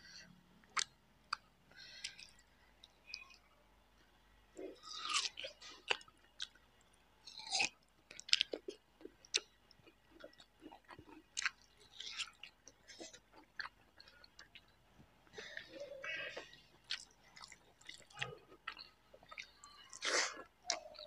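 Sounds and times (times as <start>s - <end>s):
crunchy biting and chewing: 4.8s - 6.0s.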